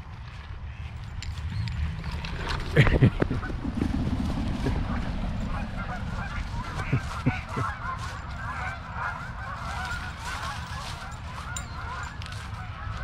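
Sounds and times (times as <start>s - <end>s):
geese honking: 4.6s - 13.0s.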